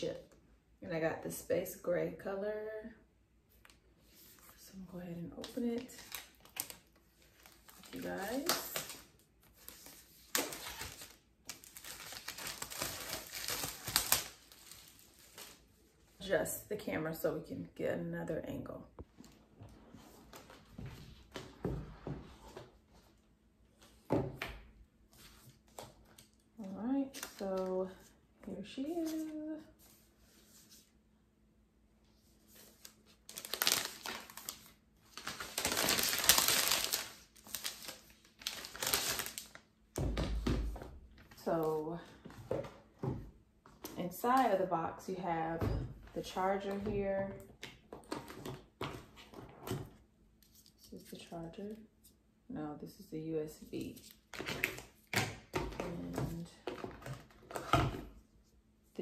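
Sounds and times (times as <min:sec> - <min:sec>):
plastic wrap crinkling and tearing: 0:05.5 - 0:15.7, 0:32.6 - 0:39.7.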